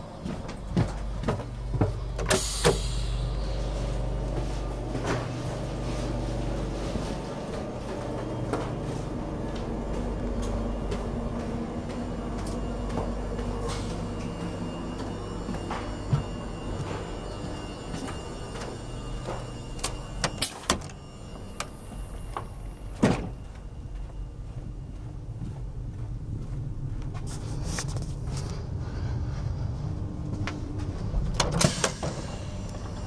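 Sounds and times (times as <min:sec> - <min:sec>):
train carriage hum: 0:00.0 - 0:33.0
sliding door hiss: 0:02.3 - 0:03.6.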